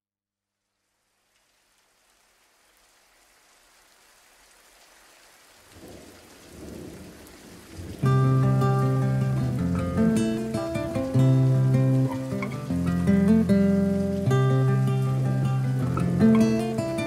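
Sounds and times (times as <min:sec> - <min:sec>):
rain: 0:00.4 - 0:17.0
low thunder rolls: 0:05.8 - 0:08.6.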